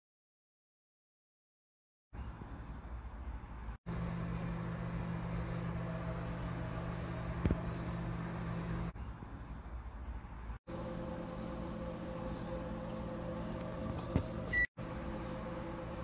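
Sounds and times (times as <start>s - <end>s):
low electrical hum: 3.9s - 9.0s, 10.7s - 16.0s.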